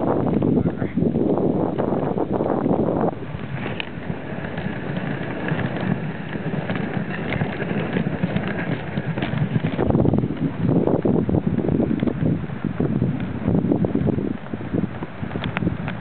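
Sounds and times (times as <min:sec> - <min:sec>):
sled runners scraping on snow: 0:00.0 - 0:16.0
dog paws pattering: 0:03.4 - 0:11.1.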